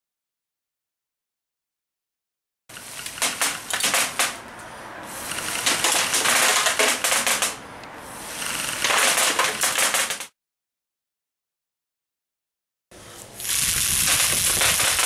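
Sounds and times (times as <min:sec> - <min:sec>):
rapid rattle of bb clicks: 0:05.3 - 0:07.6.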